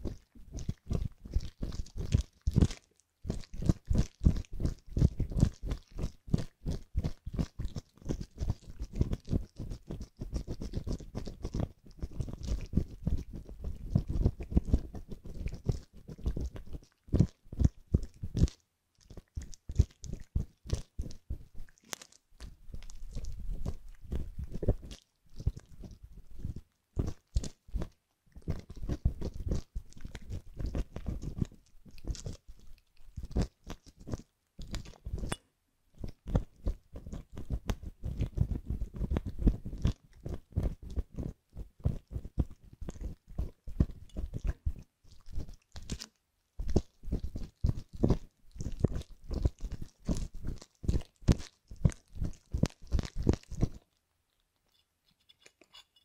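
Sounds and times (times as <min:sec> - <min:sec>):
metal hook scraping ear model: 0:54.7 - 0:56.0.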